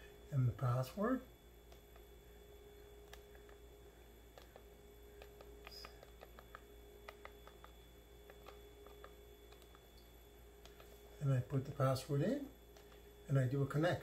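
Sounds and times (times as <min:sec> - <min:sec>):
faint steady hum: 0:00.0 - 0:14.0
keyboard keys clicking: 0:04.3 - 0:09.9.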